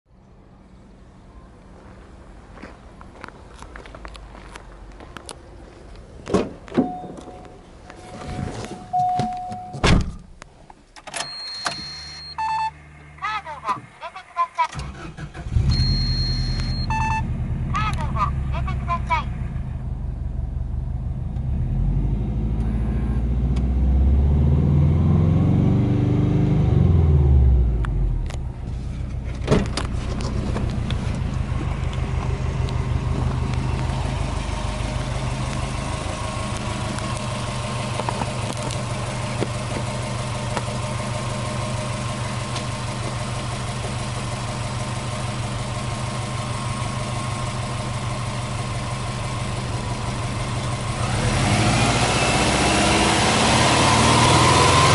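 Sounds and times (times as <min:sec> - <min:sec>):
car engine revving and idling: 0:12.1 - 0:54.9.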